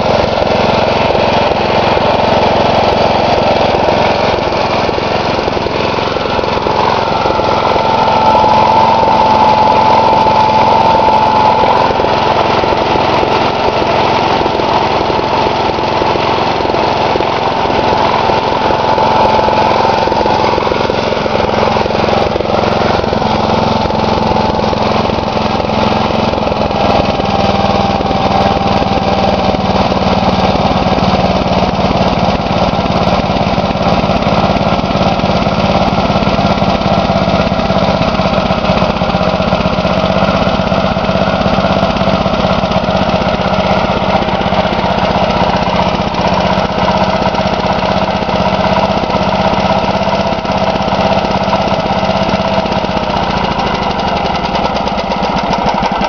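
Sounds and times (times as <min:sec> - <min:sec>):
single-cylinder engine running: 0:00.0 - 0:56.0.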